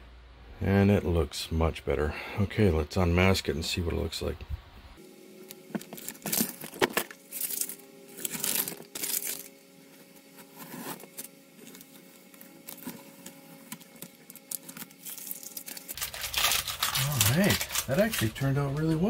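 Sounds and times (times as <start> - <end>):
masking tape peeling off plastic: 5.5 - 9.6, 10.6 - 18.7.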